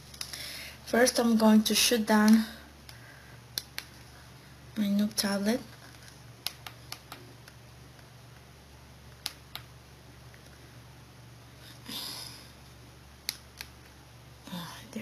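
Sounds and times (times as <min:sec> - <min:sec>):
faint low hum: 0:00.0 - 0:15.0
fingers tapping a touchscreen: 0:06.4 - 0:07.6.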